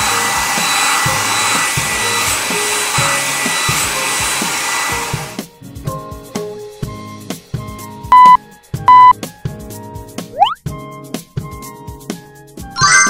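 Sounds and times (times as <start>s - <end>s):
hair dryer whining: 0.0s - 5.4s.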